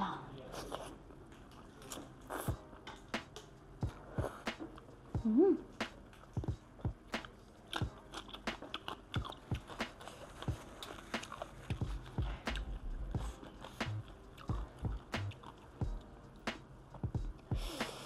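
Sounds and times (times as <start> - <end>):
person chewing crunchy food: 7.2 - 16.2.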